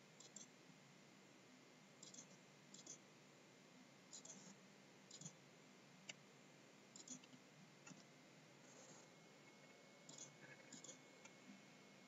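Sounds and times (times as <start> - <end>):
computer mouse clicks: 0.2 - 0.5, 2.0 - 3.0, 4.1 - 5.4, 7.0 - 8.1, 10.1 - 11.4.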